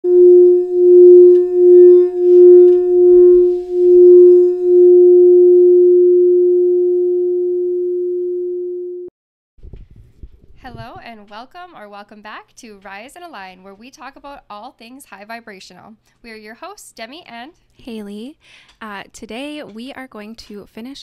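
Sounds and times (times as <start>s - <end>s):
steady ringing tone: 0.0s - 9.1s.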